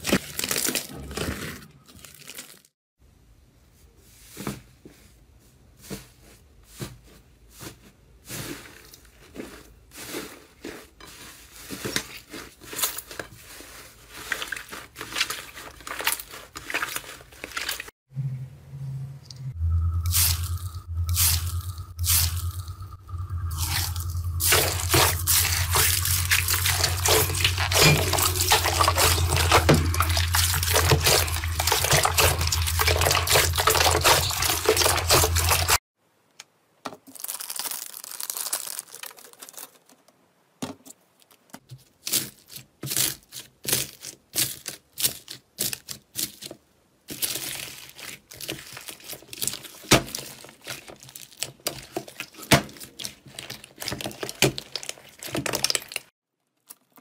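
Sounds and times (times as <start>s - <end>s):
foil packet crinkling: 0.0s - 2.7s, 23.5s - 35.8s, 37.0s - 40.1s, 41.2s - 57.0s
slime squelching and crackling: 8.9s - 17.9s, 20.1s - 35.8s, 37.0s - 40.0s, 47.1s - 57.0s
low hum: 18.1s - 35.8s.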